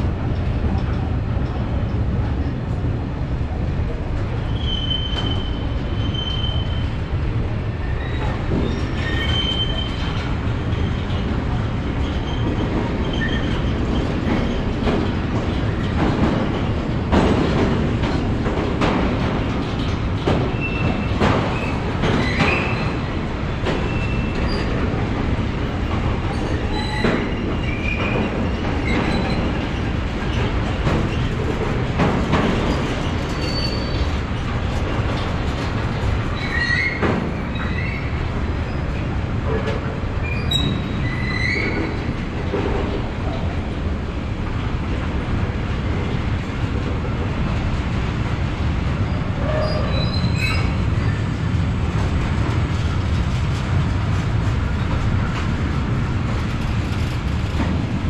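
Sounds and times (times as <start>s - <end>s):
train wheels rumbling on rail: 0.0s - 58.0s
wheels clacking over rail joints: 4.1s - 58.0s
high wheel squeals: 4.5s - 6.9s.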